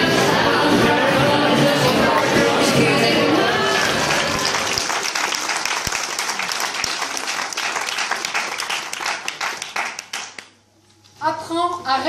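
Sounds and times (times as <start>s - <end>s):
audience applauding: 1.9s - 10.6s.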